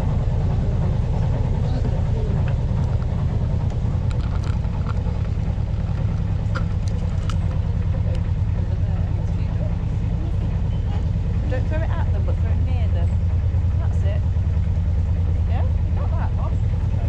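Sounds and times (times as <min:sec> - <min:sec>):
boat engine rumbling: 0:00.0 - 0:17.0.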